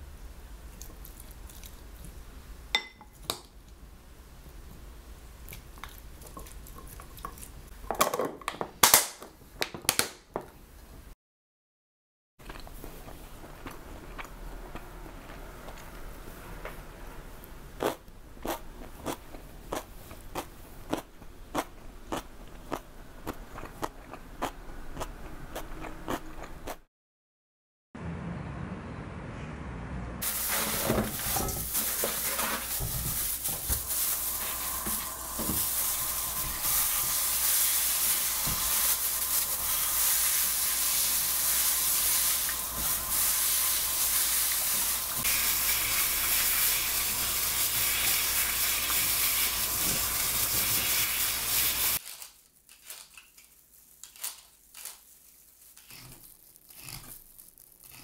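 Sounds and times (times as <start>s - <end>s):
roots rustling in metal bowl: 30.2s - 37.3s.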